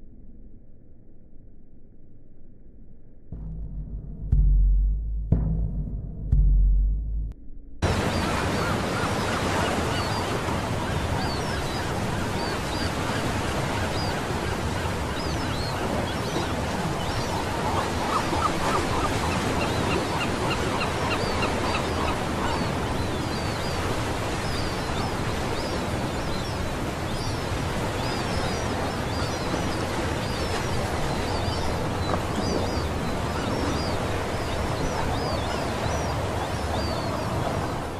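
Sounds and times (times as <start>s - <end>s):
birds calling: 7.8s - 37.9s
waves breaking on beach: 7.8s - 37.9s.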